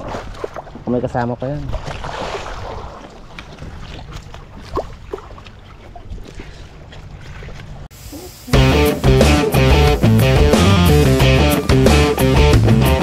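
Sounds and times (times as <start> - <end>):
wind: 0.0 - 9.8
water noise: 0.0 - 12.6.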